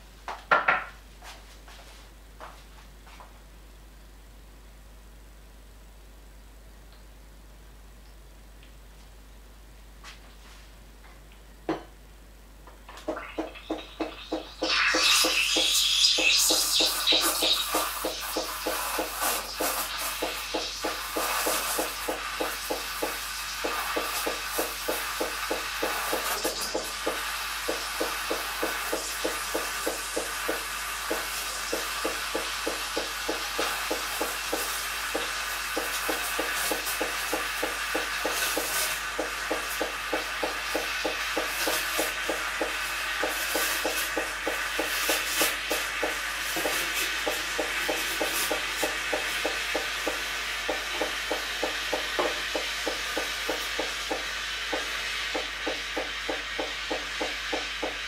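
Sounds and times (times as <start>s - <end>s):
pump pulsing: 13.0s - 58.0s
steam wand hissing into milk: 13.1s - 58.0s.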